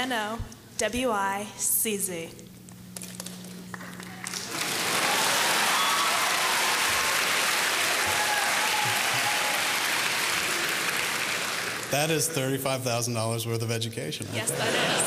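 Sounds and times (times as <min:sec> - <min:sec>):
audience applauding: 0:03.2 - 0:12.4.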